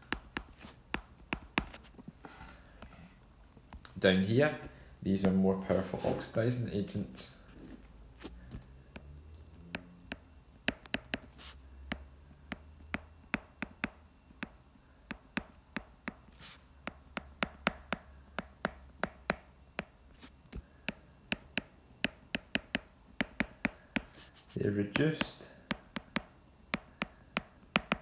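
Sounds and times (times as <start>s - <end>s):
stylus tapping on tablet screen: 0.0s - 1.9s, 9.8s - 11.3s, 11.9s - 16.3s, 16.9s - 24.2s, 25.0s - 28.0s.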